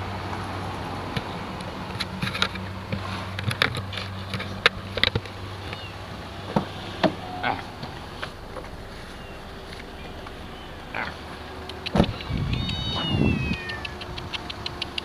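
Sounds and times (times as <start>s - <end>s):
car engine idling: 0.0s - 15.0s
light clicks and taps: 13.5s - 15.0s.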